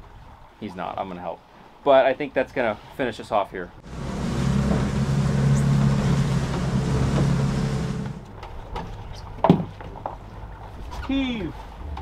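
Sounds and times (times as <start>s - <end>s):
wind and water rushing: 0.0s - 8.4s
outboard engine running: 3.8s - 8.4s.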